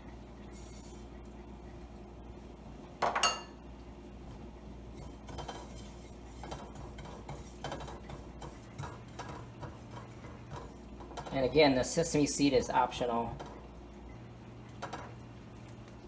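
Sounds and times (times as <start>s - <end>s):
spatula scraping and tapping pan: 0.5s - 1.1s, 4.9s - 11.5s
dishware clink: 3.0s - 3.6s.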